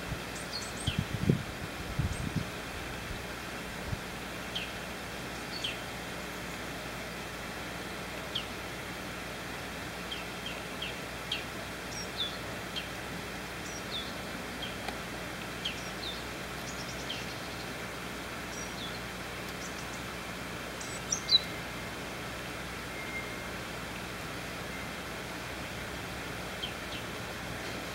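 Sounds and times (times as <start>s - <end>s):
background hiss: 0.0s - 27.9s
small birds chirping: 0.3s - 1.2s, 4.4s - 6.8s, 8.2s - 8.6s, 9.9s - 22.0s, 24.5s - 27.9s.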